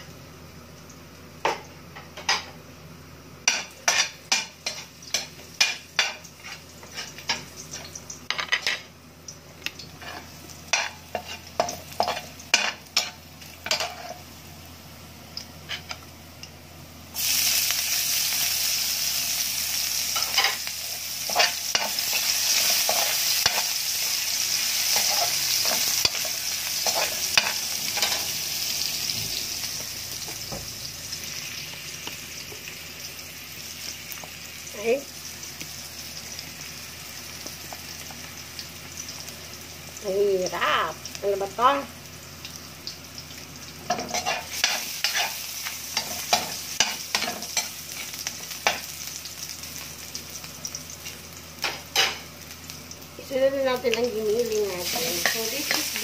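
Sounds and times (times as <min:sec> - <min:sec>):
loud sizzle: 0:00.0 - 0:56.0
metal spoon scraping wok: 0:43.9 - 0:45.4.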